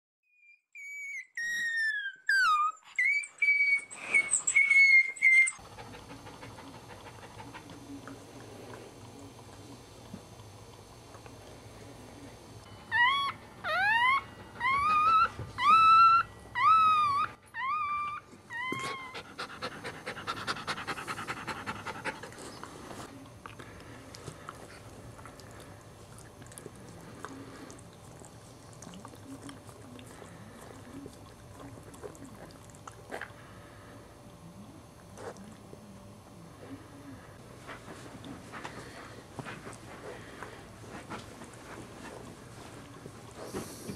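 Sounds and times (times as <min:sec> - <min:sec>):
puppy squealing: 0:00.3 - 0:05.6, 0:12.9 - 0:19.4.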